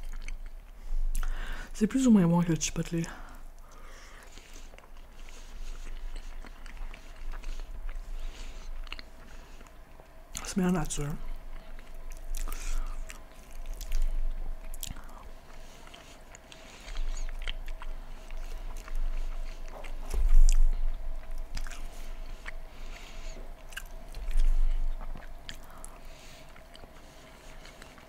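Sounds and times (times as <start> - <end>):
close chewing and biting: 0.0 - 1.4, 3.6 - 28.0
faint steady hum: 0.0 - 28.0.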